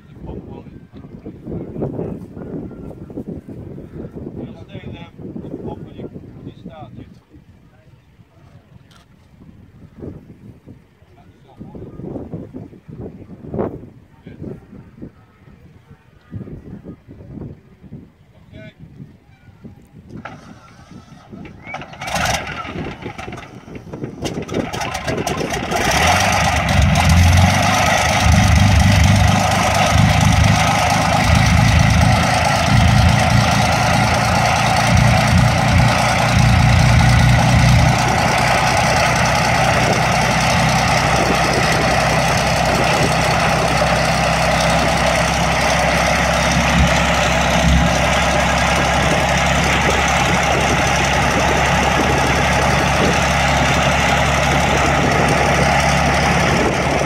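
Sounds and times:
aircraft engine idling: 0:20.2 - 0:57.0.

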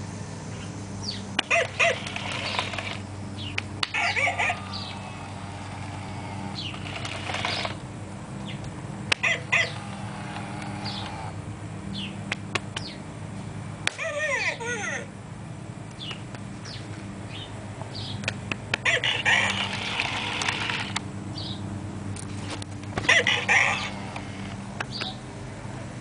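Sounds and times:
electric motor hum: 0:00.0 - 0:13.8, 0:15.1 - 0:26.0
rattling: 0:03.8 - 0:07.8
short high squeals: 0:09.2 - 0:11.4.

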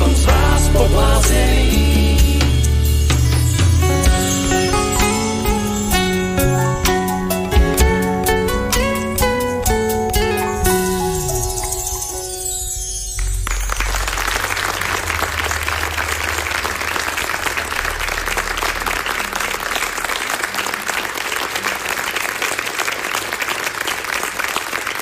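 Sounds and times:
audience applauding: 0:13.2 - 0:25.0.

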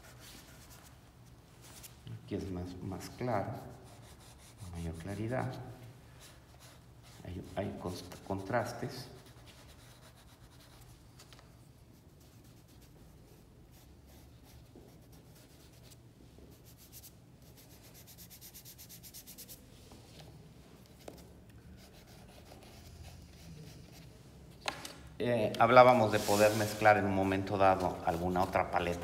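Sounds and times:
pastel rubbing on paper: 0:00.0 - 0:00.9, 0:03.5 - 0:05.5, 0:06.2 - 0:11.2, 0:11.8 - 0:19.7, 0:21.0 - 0:24.1, 0:25.9 - 0:29.0.

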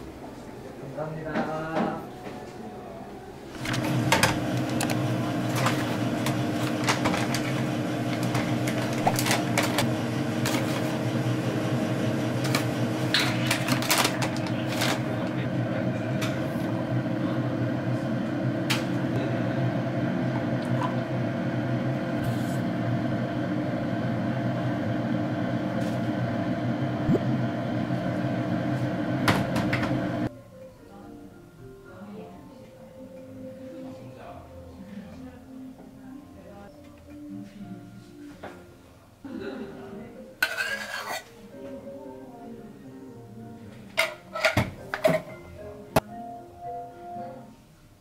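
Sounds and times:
electric appliance hum: 0:03.5 - 0:30.3
cups and utensils clinking: 0:40.4 - 0:41.3.

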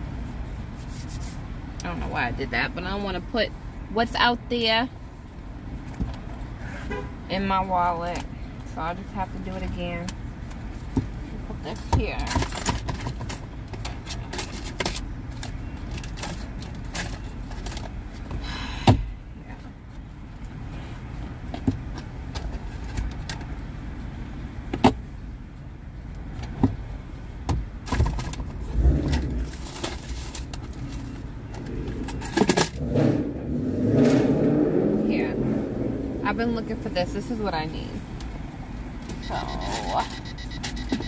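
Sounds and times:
steady low rumble: 0:28.4 - 0:39.6.

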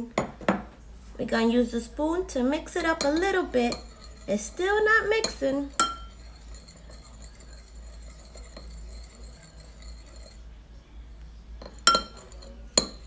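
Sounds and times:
spoon stirring in glass bowl: 0:02.8 - 0:10.5, 0:11.6 - 0:13.0
spoon clinking against glass: 0:03.0 - 0:04.3, 0:05.2 - 0:10.4, 0:11.6 - 0:13.0.

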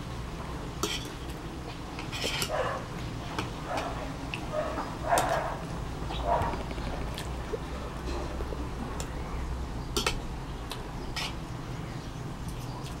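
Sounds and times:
steady low hum: 0:00.0 - 0:13.0
cutlery scraping a plate: 0:00.8 - 0:01.2, 0:02.0 - 0:02.6, 0:11.2 - 0:11.4.

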